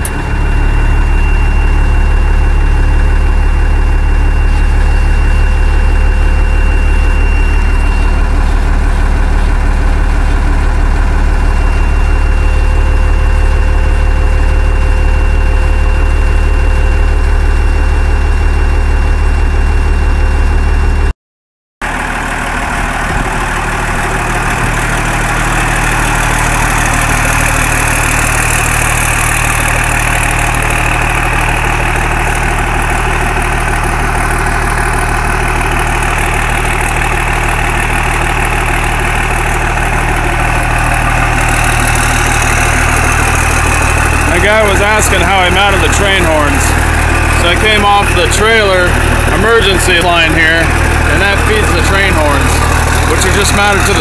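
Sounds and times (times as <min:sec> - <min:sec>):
diesel truck engine idling: 0:00.0 - 0:21.1, 0:21.8 - 0:54.0
engine hiss: 0:21.9 - 0:54.0.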